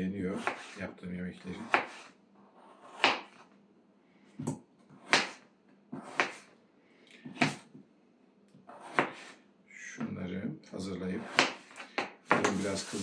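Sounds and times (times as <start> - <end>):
knife chopping on cutting board: 0.3 - 0.8, 1.5 - 3.4, 4.4 - 6.5, 7.3 - 7.7, 8.7 - 9.4, 11.2 - 13.0.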